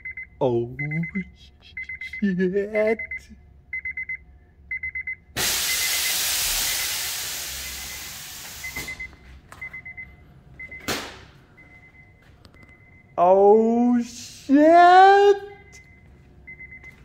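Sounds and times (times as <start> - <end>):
rapid electronic beeping: 0.0 - 7.0
air suspension hissing: 5.4 - 9.0.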